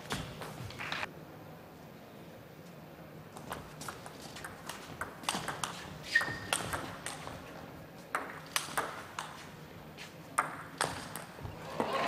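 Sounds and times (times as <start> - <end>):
table tennis ball hits: 3.4 - 7.4, 8.1 - 9.4, 10.4 - 11.4.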